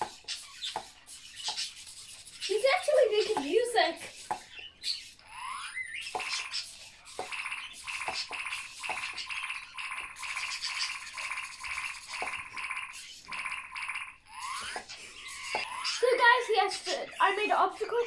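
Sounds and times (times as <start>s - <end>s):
toy robot electronic buzz: 5.3s - 16.5s.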